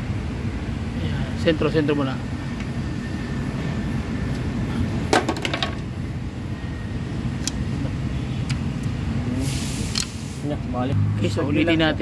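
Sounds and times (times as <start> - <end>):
rattle of clicks and small knocks: 5.1 - 5.9.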